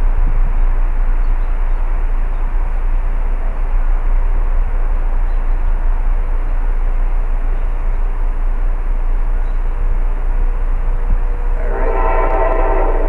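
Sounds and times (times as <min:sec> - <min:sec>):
train rumbling: 0:00.0 - 0:13.0.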